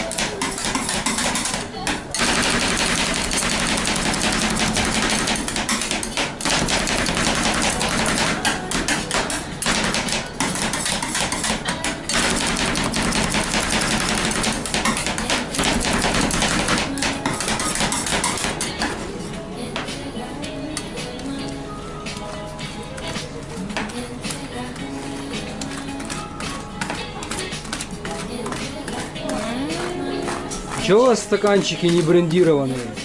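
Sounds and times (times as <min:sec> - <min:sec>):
metal spatulas chopping on steel: 0:00.0 - 0:19.0, 0:30.2 - 0:33.0.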